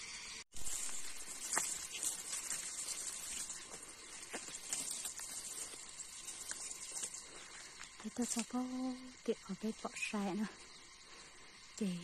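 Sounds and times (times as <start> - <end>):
grass rustling underfoot: 0.5 - 9.2
stems clicking when brushed: 0.6 - 9.2.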